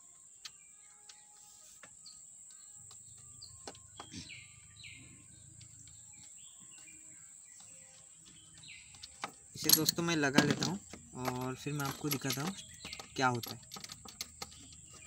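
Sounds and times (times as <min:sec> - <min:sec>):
faint bird chirps: 0:00.0 - 0:09.7.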